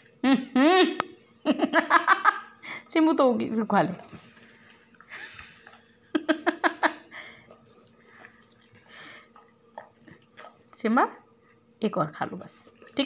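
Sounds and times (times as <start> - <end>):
dogs sniffing and chewing: 2.6 - 13.0
dog breathy puffs: 7.0 - 9.4.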